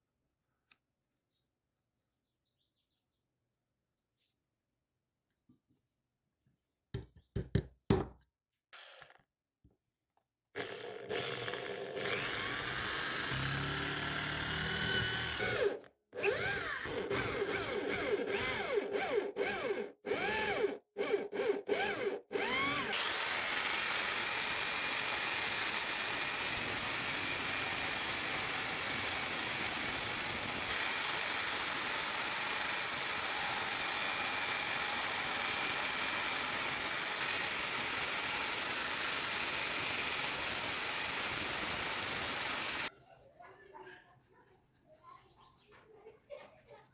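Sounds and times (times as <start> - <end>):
electric drill boring metal: 10.6 - 42.9
power grinder cutting steel: 10.7 - 42.9.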